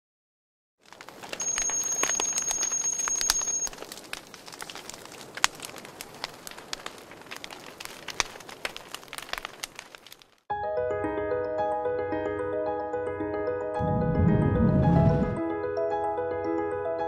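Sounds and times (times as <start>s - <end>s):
campfire crackling and popping: 0.8s - 10.5s.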